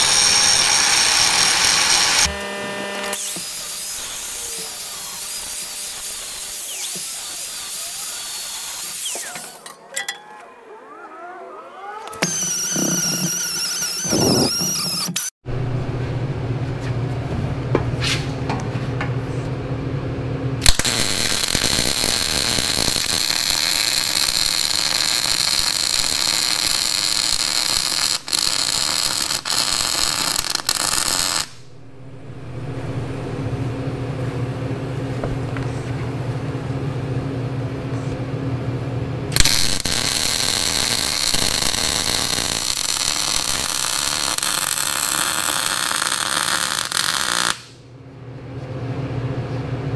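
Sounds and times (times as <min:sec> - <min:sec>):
welding arc crackling and hissing: 0:00.0 - 0:09.6, 0:20.6 - 0:31.7, 0:39.4 - 0:47.8
steady low hum: 0:31.5 - 0:39.8.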